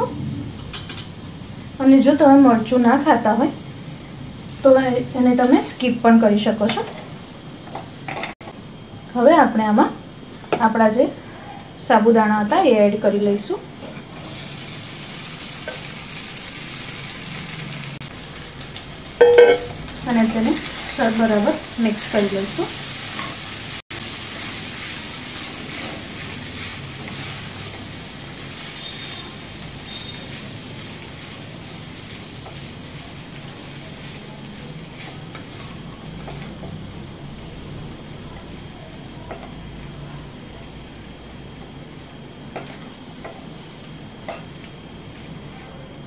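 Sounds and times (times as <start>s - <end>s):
food sizzling in a pan: 0.0s - 46.0s
spatula scraping and tapping pan: 19.2s - 19.8s
spatula stirring food: 31.0s - 36.8s.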